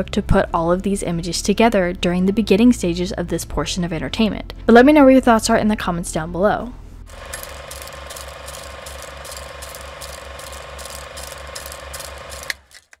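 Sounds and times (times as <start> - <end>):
film projector clatter: 7.1 - 13.0.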